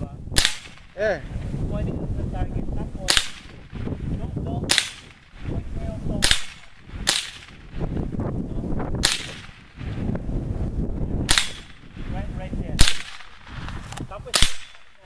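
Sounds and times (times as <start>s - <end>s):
rifle firing sharp cracks: 0.4s - 1.0s, 3.1s - 3.8s, 4.7s - 5.4s, 6.2s - 7.8s, 9.0s - 9.8s, 11.2s - 11.9s, 12.8s - 15.0s.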